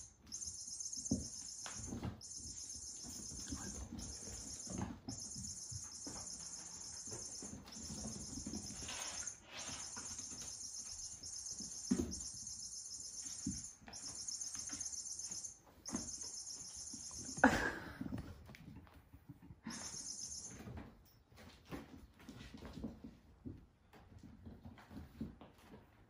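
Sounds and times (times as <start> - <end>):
high-pitched chirring: 0.0 - 17.7, 19.7 - 20.7
kittens thumping and scuffling: 0.2 - 26.0.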